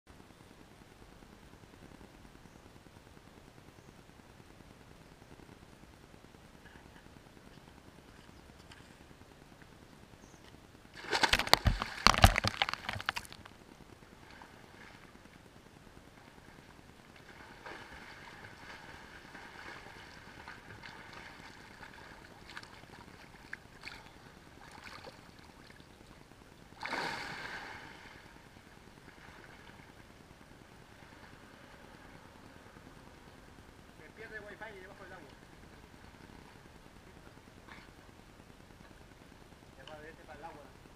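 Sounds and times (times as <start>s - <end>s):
loud splash into pool: 11.0s - 13.1s, 26.8s - 27.9s
water sloshing and lapping: 11.0s - 13.5s, 17.2s - 26.2s.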